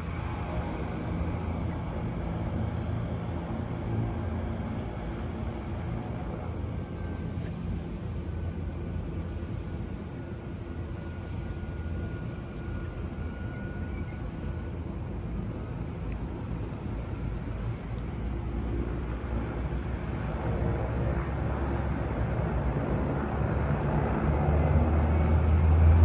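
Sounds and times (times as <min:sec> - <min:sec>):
boat and floatplane engines droning: 0:00.0 - 0:26.0.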